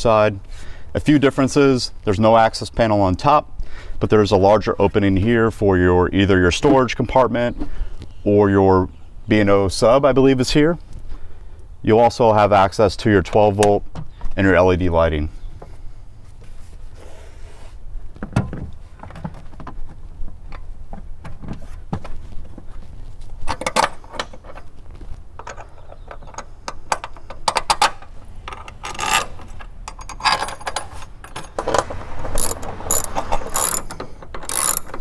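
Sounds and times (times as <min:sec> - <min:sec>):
metal parts clinking: 0:25.4 - 0:35.0
ratchet wrench clicking: 0:32.4 - 0:35.0.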